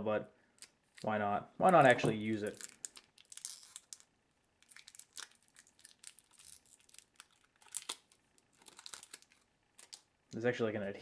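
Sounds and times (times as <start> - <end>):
batteries crinkling and clicking apart: 1.7 - 10.1.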